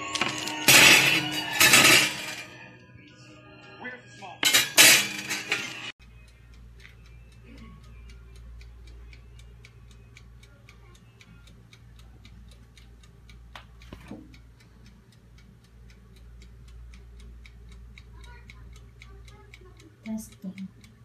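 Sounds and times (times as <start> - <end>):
mechanical timer ticking: 5.9 - 21.0.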